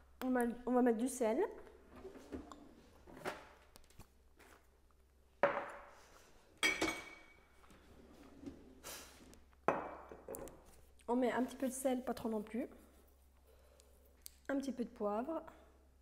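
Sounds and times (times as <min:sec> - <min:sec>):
objects knocking on countertop: 0:05.4 - 0:05.8, 0:09.7 - 0:10.4.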